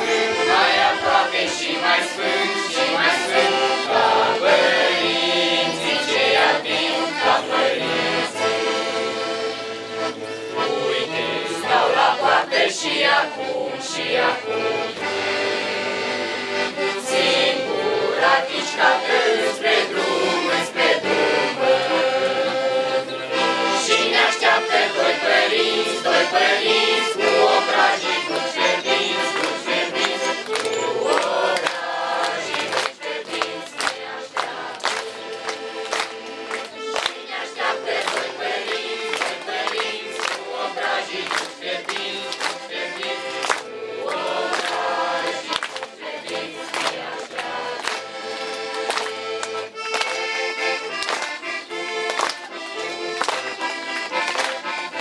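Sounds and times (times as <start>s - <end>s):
group of voices singing: 0.0s - 49.8s
instrumental accompaniment: 0.0s - 55.0s.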